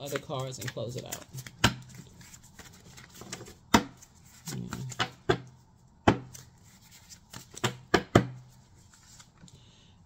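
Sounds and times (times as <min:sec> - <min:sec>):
cards slapping and tapping: 0:00.0 - 0:08.4.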